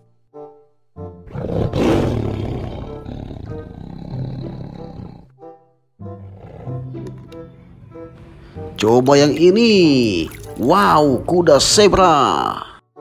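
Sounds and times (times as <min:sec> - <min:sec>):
background music: 0:00.0 - 0:13.0
tiger roaring: 0:01.2 - 0:05.3, 0:06.2 - 0:07.1.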